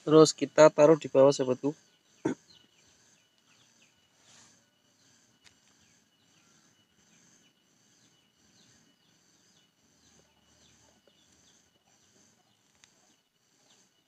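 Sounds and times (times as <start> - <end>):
faint wildlife chirping: 0.0 - 14.0.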